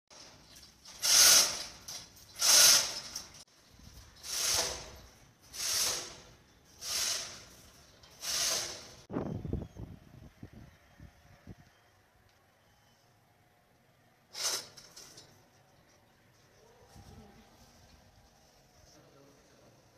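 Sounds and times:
irregular chain clatter: 0:00.1 - 0:09.1, 0:14.3 - 0:16.1
hoist chain rattling: 0:00.2 - 0:06.2.

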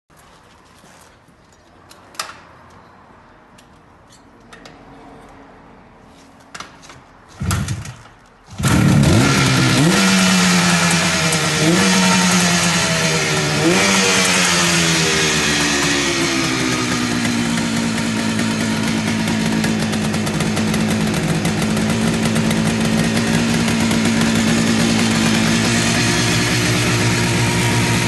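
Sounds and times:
motorcycle engine starting and revving: 0:07.3 - 0:28.0.

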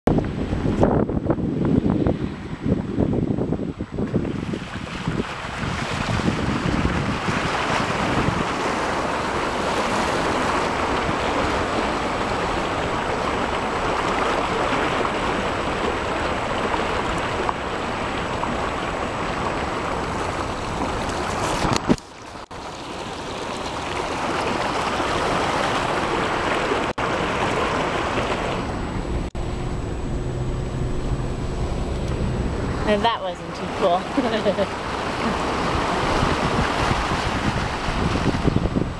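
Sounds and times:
car driving through floodwater: 0:00.2 - 0:38.9.

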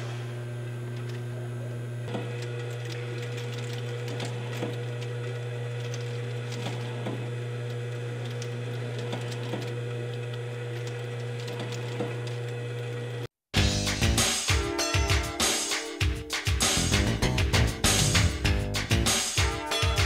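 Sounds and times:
machine low hum: 0:00.0 - 0:13.3.

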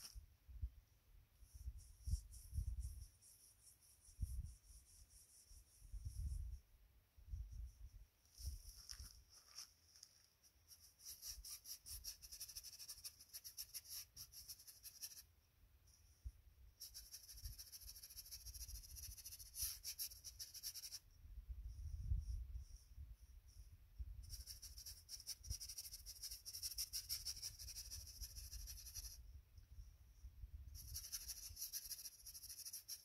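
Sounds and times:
wind rumble on microphone: 0:01.5 - 0:03.1, 0:04.0 - 0:04.8, 0:05.8 - 0:09.0, 0:21.2 - 0:24.5.

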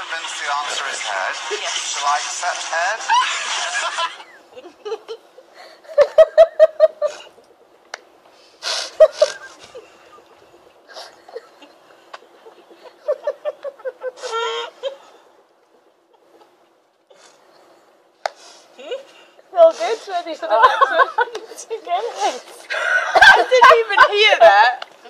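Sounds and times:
muffled stifled giggles: 0:03.0 - 0:07.8, 0:08.8 - 0:16.6
breath hiss: 0:08.3 - 0:10.2, 0:17.1 - 0:20.2.

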